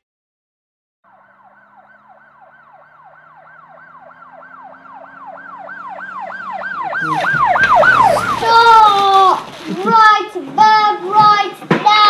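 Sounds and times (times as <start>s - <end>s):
yelp siren: 1.1s - 9.6s.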